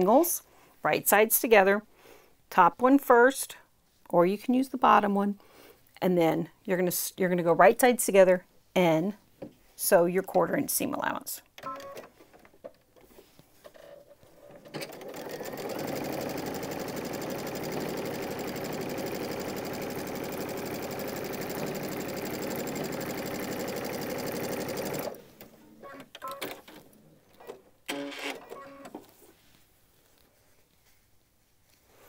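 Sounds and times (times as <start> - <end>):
sewing machine stitching: 13.6 - 29.1.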